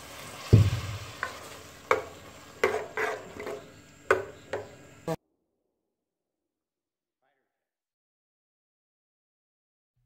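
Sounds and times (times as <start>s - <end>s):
low thump: 0.5s - 1.1s
spoon scraping a metal pot: 1.2s - 4.7s.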